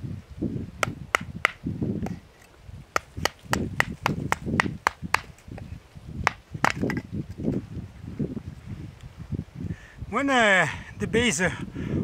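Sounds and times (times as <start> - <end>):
firewood cracking and knocking: 3.0 - 5.6, 6.2 - 7.5.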